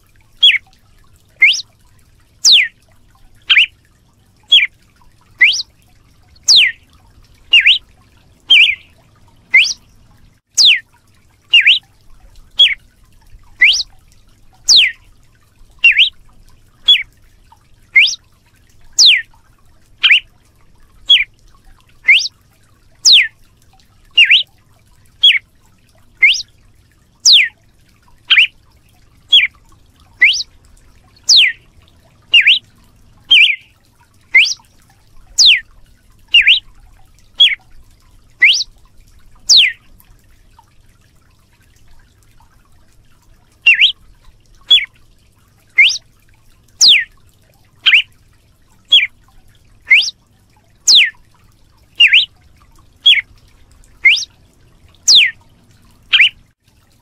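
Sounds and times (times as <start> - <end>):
bird singing repetitive call: 0.4 - 0.6, 1.4 - 1.6, 2.4 - 2.7, 3.4 - 3.7, 4.5 - 4.7, 5.4 - 5.7, 6.4 - 6.8, 7.5 - 7.8, 8.5 - 9.8, 10.5 - 10.8, 11.5 - 11.8, 12.6 - 12.8, 13.6 - 13.9, 14.7 - 15.0, 15.8 - 16.2, 16.8 - 17.1, 18.0 - 18.2, 19.0 - 19.3, 20.0 - 20.3, 21.1 - 21.3, 22.0 - 22.3, 23.0 - 23.3, 24.1 - 24.5, 25.2 - 25.4, 26.2 - 26.5, 27.2 - 27.6, 28.3 - 28.5, 29.3 - 29.5, 30.2 - 30.5, 31.2 - 31.6, 32.3 - 32.6, 33.3 - 33.7, 34.3 - 34.6, 35.4 - 35.6, 36.3 - 36.6, 37.4 - 37.6, 38.4 - 38.7, 39.5 - 39.8, 43.6 - 44.0, 44.7 - 44.9, 45.8 - 46.0, 46.8 - 47.1, 47.8 - 48.1, 48.9 - 49.1, 49.9 - 50.2, 50.9 - 51.2, 52.0 - 52.3, 53.0 - 53.3, 54.0 - 54.3, 55.1 - 55.4, 56.1 - 56.4.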